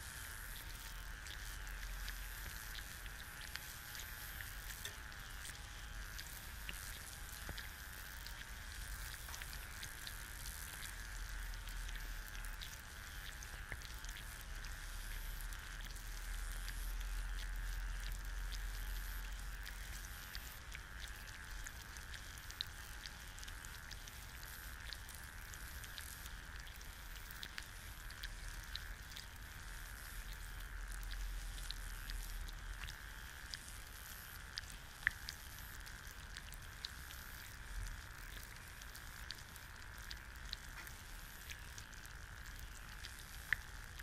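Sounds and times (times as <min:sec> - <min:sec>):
egg sizzling in a pan: 0:00.0 - 0:44.0
sharp pops and crackles: 0:00.0 - 0:44.0.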